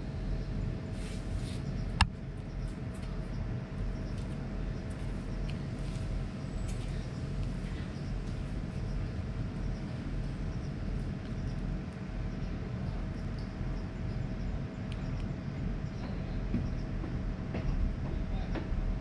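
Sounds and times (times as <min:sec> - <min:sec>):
faint steady hum: 0:00.0 - 0:17.1
low outdoor rumble: 0:00.0 - 0:19.0
faint ticks: 0:05.4 - 0:05.6.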